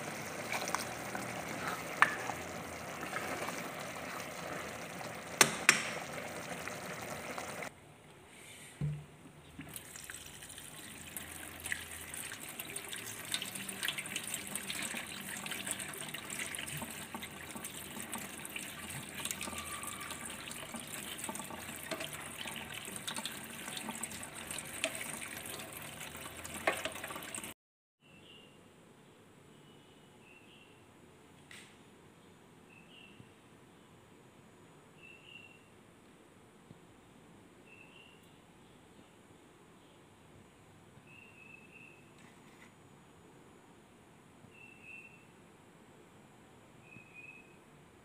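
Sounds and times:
sauce simmering in a pot: 0:00.0 - 0:07.7, 0:09.7 - 0:27.5
tap water running over pasta: 0:00.0 - 0:07.7, 0:09.6 - 0:27.6.

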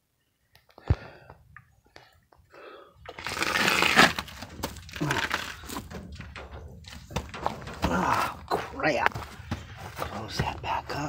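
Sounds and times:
scraping and rustling: 0:03.1 - 0:11.0.

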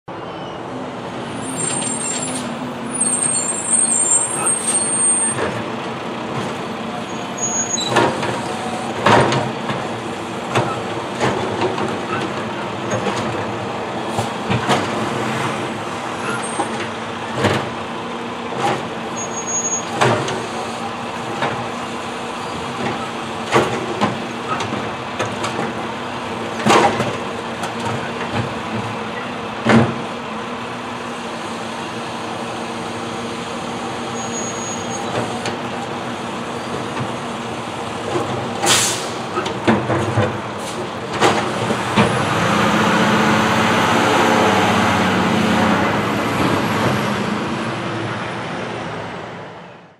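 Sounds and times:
air brake hisses: 0:38.6 - 0:39.2.

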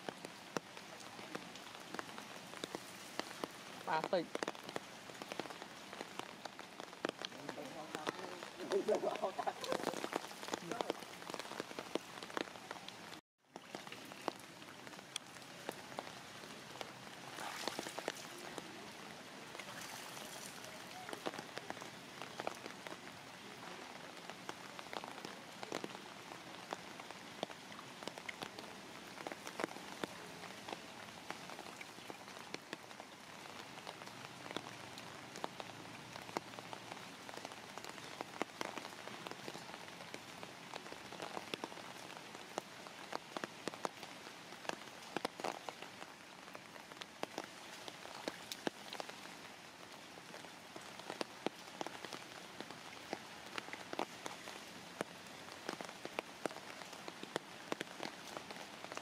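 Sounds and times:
steady rain falling: 0:00.0 - 0:59.0.

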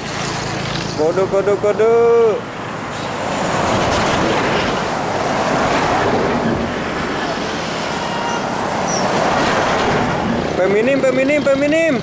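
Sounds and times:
bus driving past: 0:00.0 - 0:12.0.

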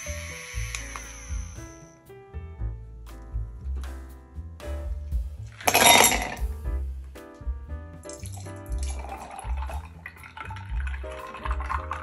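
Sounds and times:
background music: 0:00.0 - 0:12.0
ice cubes clattering into glass: 0:05.6 - 0:06.4
milk pouring over ice: 0:08.1 - 0:12.0.

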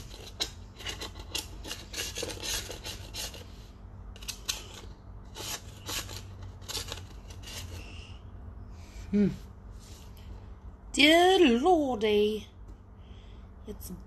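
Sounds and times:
dried paint scraped off palette: 0:00.0 - 0:03.5, 0:04.2 - 0:07.8.

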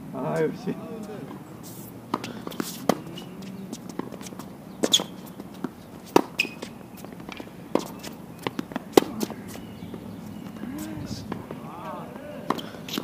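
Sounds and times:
footsteps: 0:00.4 - 0:09.7
tennis shoe squeaks: 0:01.0 - 0:10.9
rackets striking tennis ball: 0:02.1 - 0:11.7, 0:12.4 - 0:13.0.

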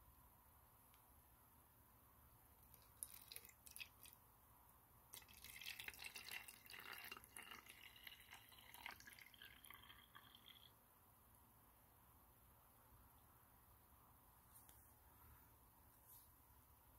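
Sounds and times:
liquid trickling through funnel: 0:02.7 - 0:04.2, 0:05.1 - 0:10.8.

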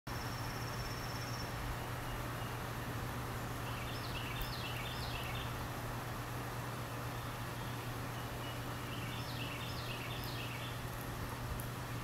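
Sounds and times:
songbirds singing: 0:00.1 - 0:12.0
steady background hiss: 0:00.1 - 0:12.0.

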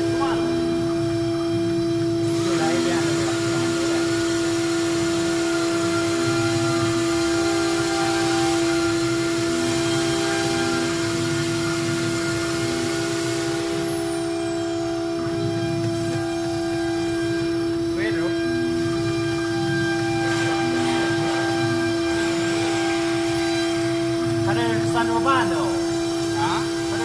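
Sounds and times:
cnc router spindle hum: 0:00.0 - 0:27.0
high steady whine: 0:00.0 - 0:27.0
router bit cutting wood: 0:00.0 - 0:27.0.

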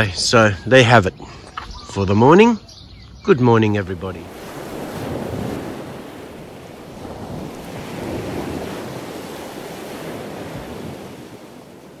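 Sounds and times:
surf-like rushing noise: 0:04.2 - 0:12.0.

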